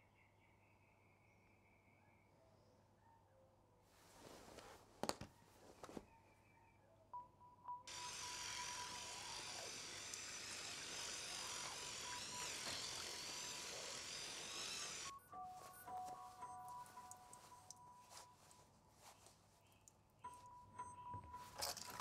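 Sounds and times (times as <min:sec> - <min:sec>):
electric toothbrush whining: 0:07.9 - 0:15.1.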